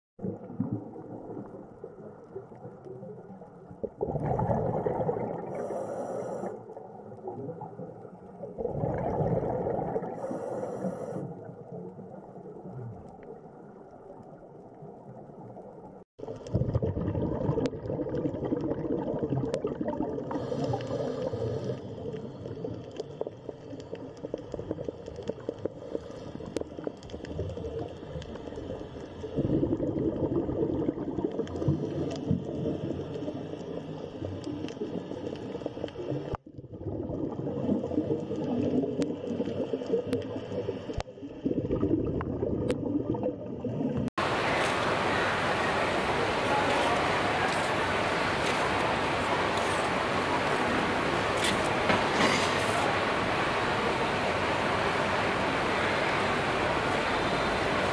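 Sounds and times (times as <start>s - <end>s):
underwater bubbling: 0.2s - 57.9s
short high hiss: 44.2s - 57.9s.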